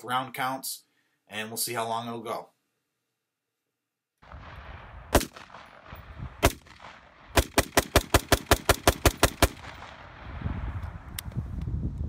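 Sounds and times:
rifle shots: 4.2s - 10.2s.

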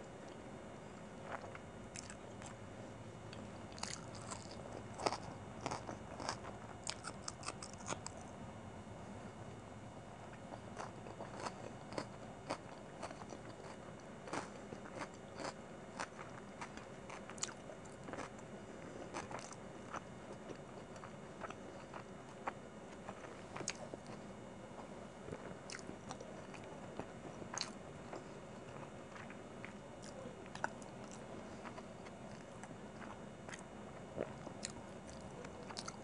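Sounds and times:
close chewing with mouth clicks: 1.2s - 2.6s, 3.3s - 8.3s, 10.3s - 18.4s, 19.0s - 24.2s, 25.3s - 36.0s.

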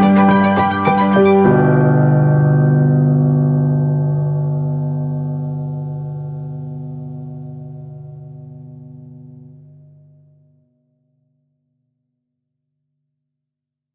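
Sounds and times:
sustained keyboard chord: 0.0s - 9.7s.

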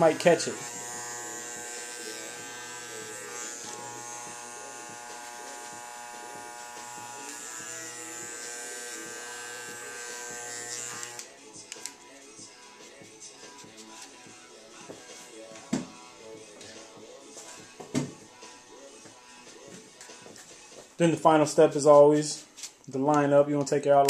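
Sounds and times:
hair clippers running: 0.0s - 11.3s.

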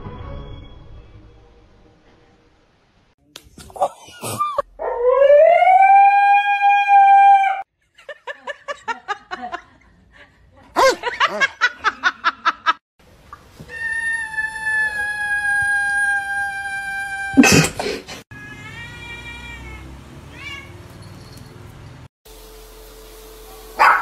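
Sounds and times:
dog howling: 4.8s - 7.6s, 13.7s - 17.5s
kitten meowing: 18.3s - 20.7s
dog barking: 23.8s - 24.0s.

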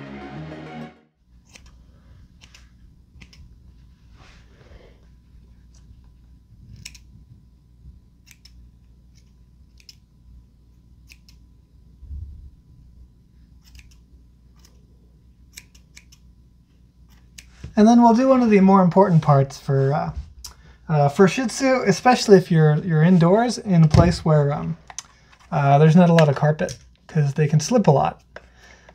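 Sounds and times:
background music: 0.0s - 1.2s
scissors snipping fur: 1.4s - 1.8s, 2.4s - 3.4s, 6.8s - 7.1s, 8.2s - 10.0s, 11.0s - 11.4s, 13.6s - 14.0s, 15.5s - 16.2s.

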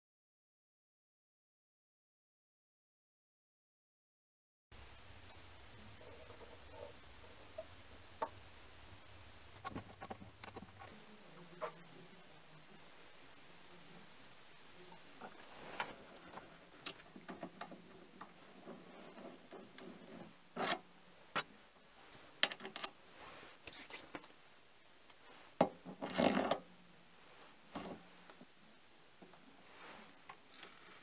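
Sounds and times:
metal scraping rattle: 18.6s - 21.6s.

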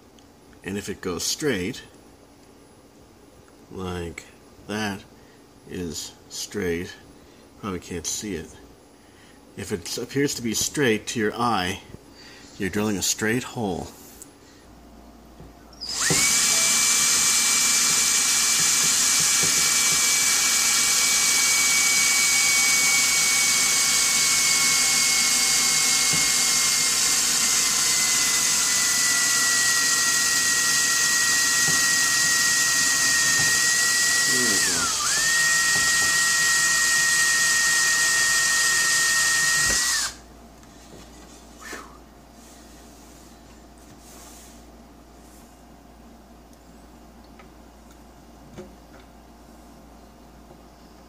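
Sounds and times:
cordless drill boring into wood: 15.8s - 40.2s.

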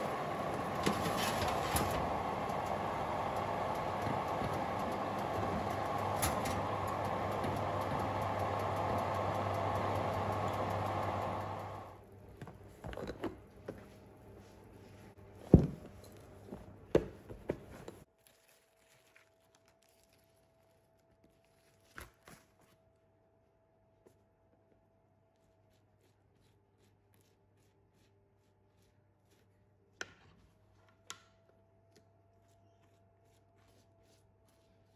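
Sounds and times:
fan humming: 0.0s - 12.2s.

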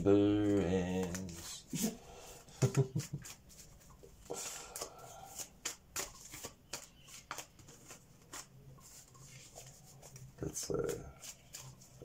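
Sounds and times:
cards shuffling: 0.4s - 12.0s.

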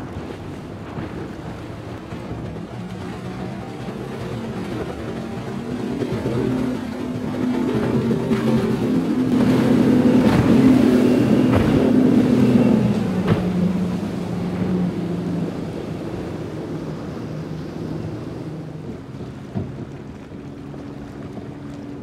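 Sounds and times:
outboard motor passing: 0.0s - 22.0s
second outboard engine: 0.0s - 22.0s.

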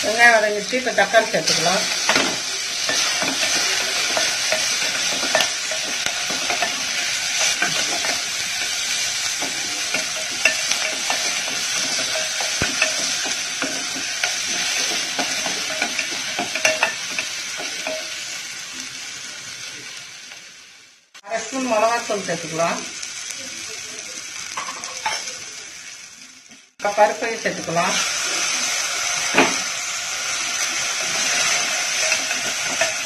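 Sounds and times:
food sizzling in hot oil: 0.0s - 33.0s
wooden spatula scraping pot: 1.5s - 18.1s.

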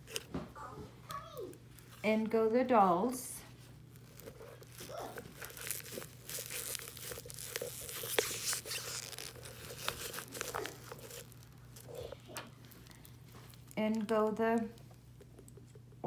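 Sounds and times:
rustling and scraping in pumpkin: 3.4s - 13.8s.

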